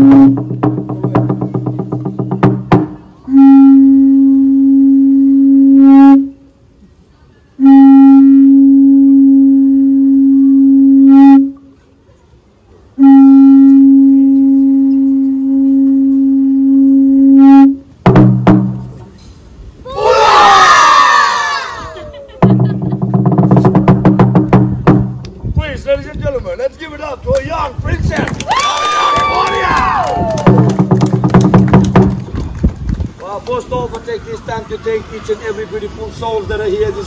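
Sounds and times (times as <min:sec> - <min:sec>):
conch shell trumpet blasts: 0:00.0 - 0:00.5, 0:03.3 - 0:06.5, 0:07.6 - 0:11.6, 0:13.0 - 0:17.9.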